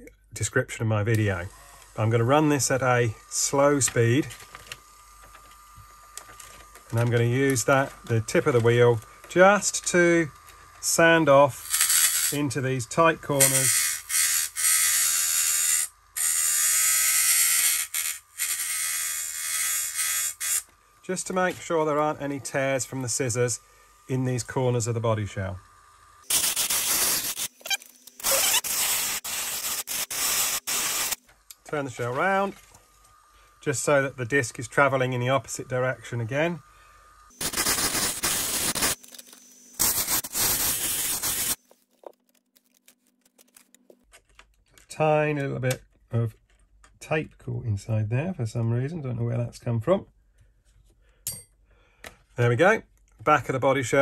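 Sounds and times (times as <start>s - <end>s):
rotary tool sanding plastic: 1.3s - 25.6s, 26.2s - 32.7s, 37.3s - 41.8s
sanding disc scraping plastic: 37.4s - 41.8s.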